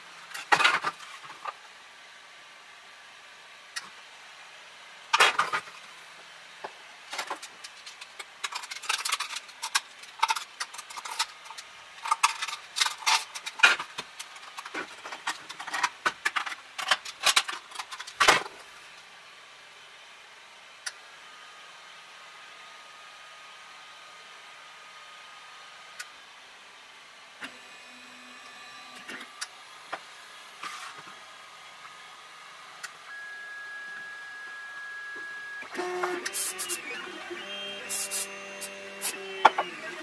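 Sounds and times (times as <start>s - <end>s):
plastic parts clicking and knocking: 7.2s - 18.5s.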